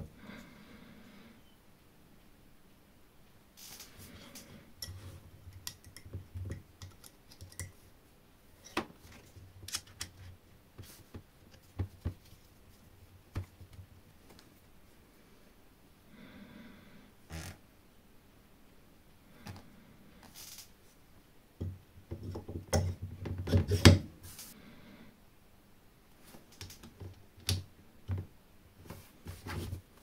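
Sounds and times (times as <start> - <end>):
tools clicking and tapping: 4.8 - 7.8.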